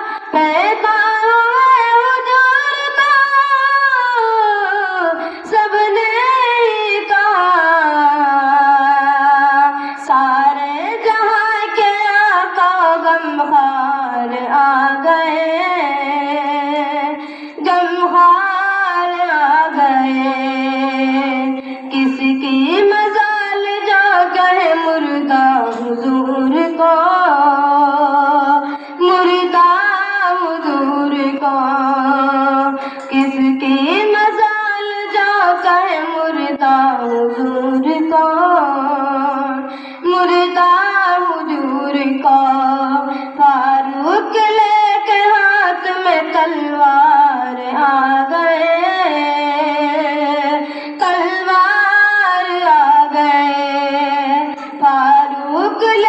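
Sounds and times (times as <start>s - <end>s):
boy singing solo: 17.6s - 56.0s.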